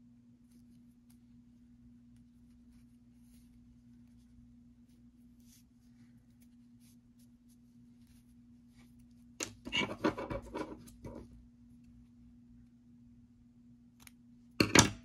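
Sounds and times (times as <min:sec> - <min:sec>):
faint steady hum: 0:00.0 - 0:15.0
hands rubbing and scratching yarn: 0:00.4 - 0:11.4.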